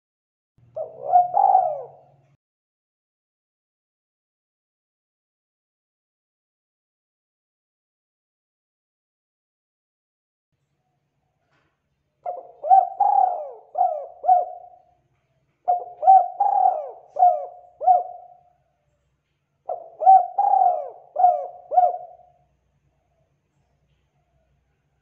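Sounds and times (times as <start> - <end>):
dove cooing: 0.8 - 2.4, 12.2 - 15.0, 15.6 - 18.6, 19.6 - 23.3.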